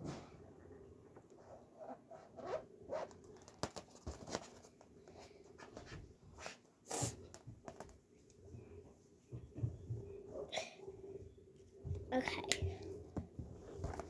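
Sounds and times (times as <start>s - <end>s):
rubbery balloon squeaks and rubs: 1.5s - 3.7s.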